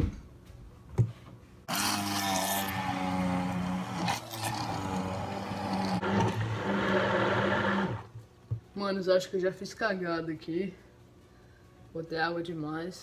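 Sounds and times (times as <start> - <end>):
blender motor running: 1.7 - 8.1.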